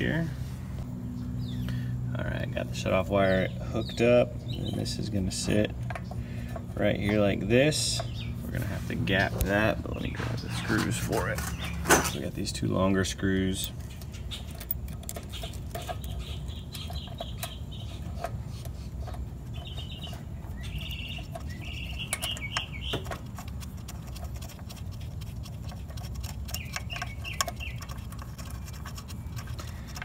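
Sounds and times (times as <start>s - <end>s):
steady low rumble: 0.0s - 30.0s
high bird chirps: 15.2s - 18.2s, 19.4s - 23.3s, 26.4s - 28.1s.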